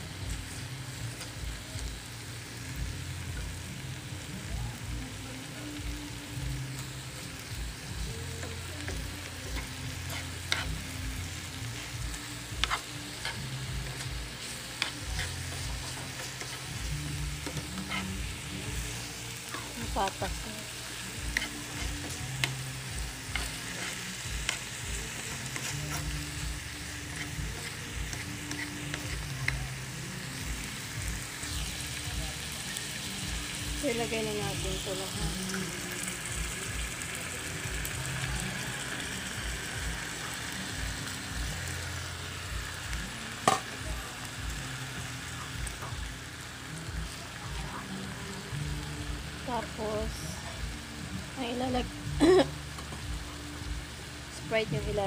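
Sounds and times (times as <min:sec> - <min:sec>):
meat sizzling in oil: 0:00.0 - 0:55.0
spoon clicking and scraping pan: 0:12.6 - 0:16.7, 0:21.3 - 0:22.6, 0:23.2 - 0:26.1.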